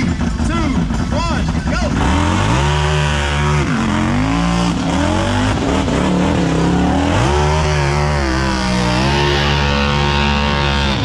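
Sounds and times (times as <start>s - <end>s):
engine revving high: 1.8s - 11.0s.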